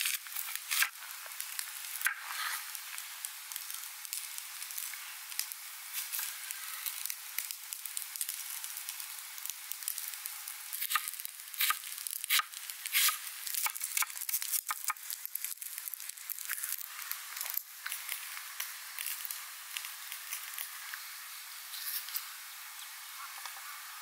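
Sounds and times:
campfire crackling: 0.0s - 23.6s
knife chopping onion on wooden board: 10.8s - 14.1s.

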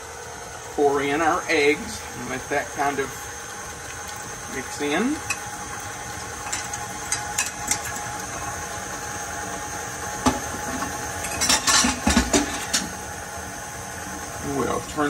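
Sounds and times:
stand mixer running: 0.0s - 15.0s
dish and fork clattering: 11.2s - 12.8s.

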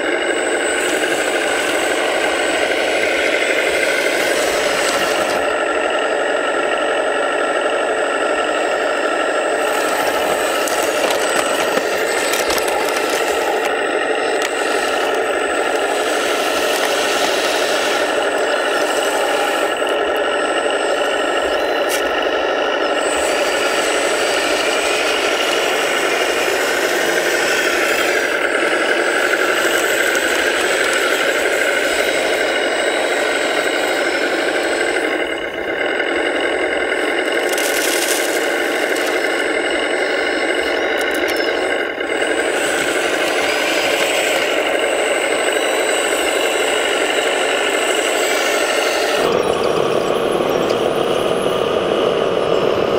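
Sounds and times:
toy loader motor drone: 0.0s - 52.9s
sharp mechanical clicks: 9.5s - 49.3s.

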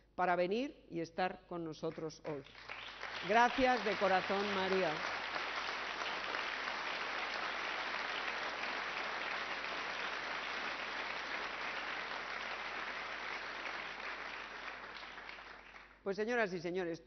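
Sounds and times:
audience applauding: 2.5s - 16.0s.

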